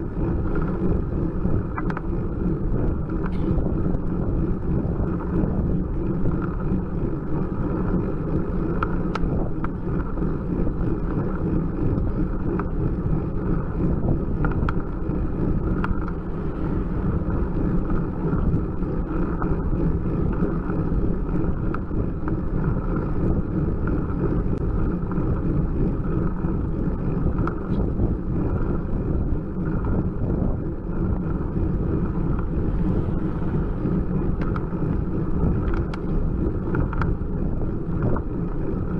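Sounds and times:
bicycle tyres rolling on asphalt: 0:00.0 - 0:38.9
wind rushing over microphone: 0:00.0 - 0:38.9
faint clicks: 0:36.7 - 0:37.2.

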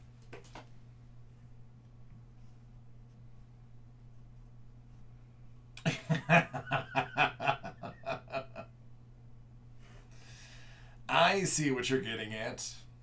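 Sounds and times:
man laughing: 0:05.8 - 0:08.7.

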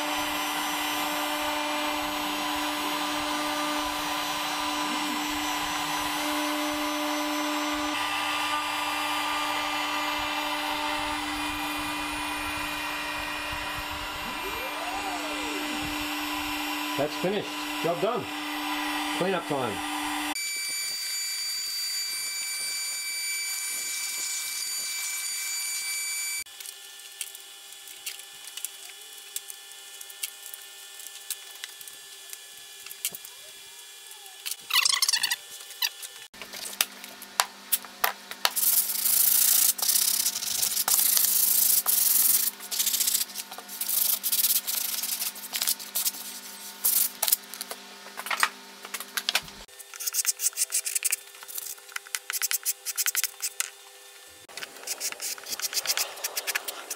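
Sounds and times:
shop vacuum whining: 0:00.0 - 0:26.5
hand sanding wood: 0:00.2 - 0:19.8, 0:38.5 - 0:47.3, 0:49.7 - 0:53.6, 0:54.5 - 0:56.9.

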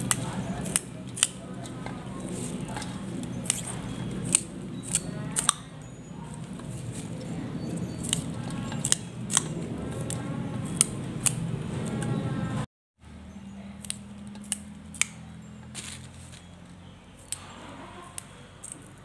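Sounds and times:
vegetable stems snapping: 0:00.0 - 0:05.7, 0:08.0 - 0:12.0, 0:13.8 - 0:16.5
steady low hum: 0:00.0 - 0:19.0.

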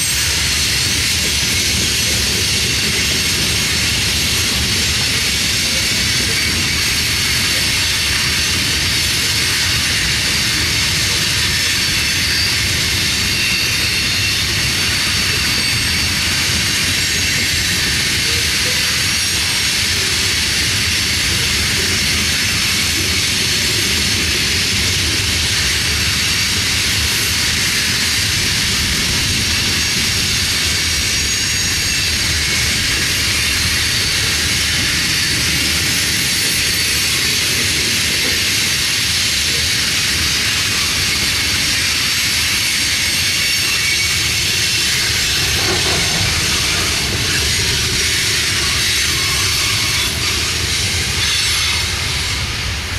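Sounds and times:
freight train wheels rumbling: 0:00.0 - 0:52.9
high hiss of wheels on rail: 0:00.0 - 0:52.9.

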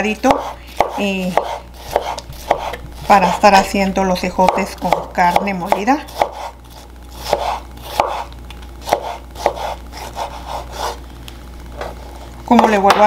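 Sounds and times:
knife chopping on wooden board: 0:00.3 - 0:03.4, 0:04.4 - 0:06.6, 0:07.2 - 0:11.0.

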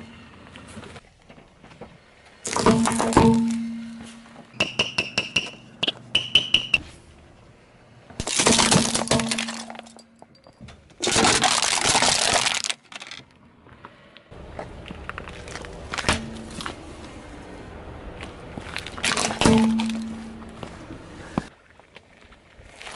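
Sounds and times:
tyre crushing objects: 0:02.4 - 0:05.6, 0:08.2 - 0:10.1, 0:14.6 - 0:16.9, 0:18.2 - 0:21.5
squeaky toy hammer: 0:04.6 - 0:06.8
can flattened under tyre: 0:08.2 - 0:10.0, 0:11.0 - 0:13.3, 0:18.6 - 0:20.4
low rumble with ticks: 0:13.2 - 0:19.2.

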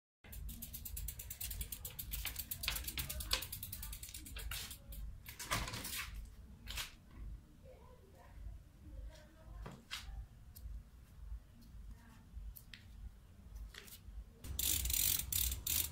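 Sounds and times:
bicycle hub ratcheting clicks: 0:00.3 - 0:05.1, 0:14.5 - 0:15.9.

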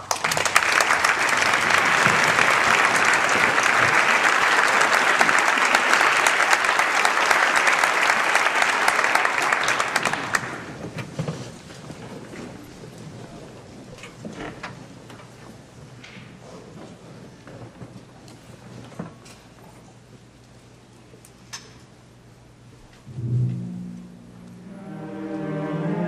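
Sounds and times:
audience applauding: 0:00.0 - 0:10.9
scattered knocks and shuffling: 0:10.8 - 0:20.3.

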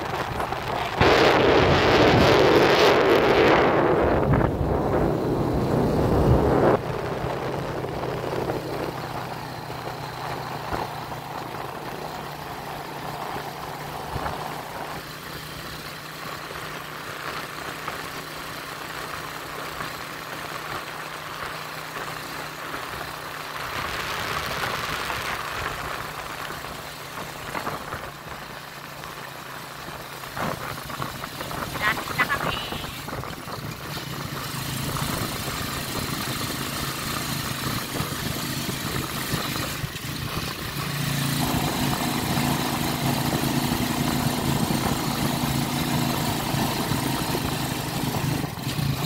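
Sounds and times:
wind buffeting microphone: 0:00.0 - 0:09.2
vehicle engine running: 0:00.0 - 0:49.0.

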